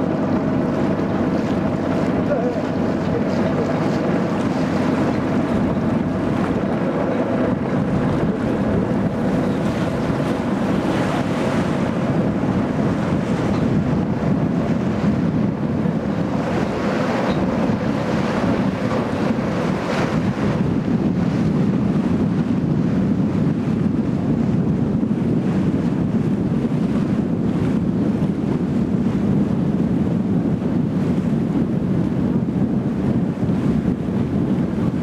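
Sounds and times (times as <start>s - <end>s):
boat engine running: 0.0s - 35.0s
water washing past hull: 0.0s - 35.0s
wind buffeting microphone: 0.0s - 35.0s.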